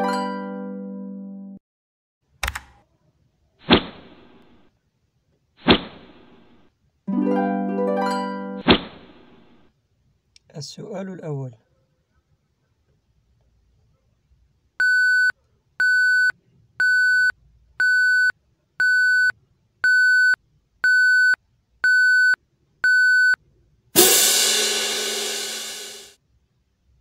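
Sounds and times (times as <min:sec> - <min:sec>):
electronic timer beeps: 0:14.8 - 0:23.4
loud crash: 0:24.0 - 0:26.2.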